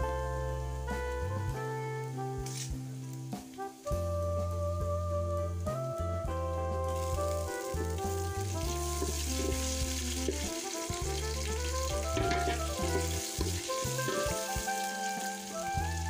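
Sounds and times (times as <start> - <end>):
instrumental background music: 0.0 - 16.0
onion sizzling in hot oil: 6.9 - 16.0
wooden spatula stirring: 8.6 - 15.0.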